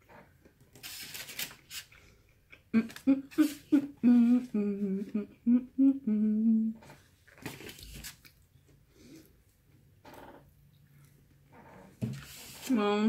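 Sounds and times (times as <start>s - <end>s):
woman humming: 2.7s - 6.9s.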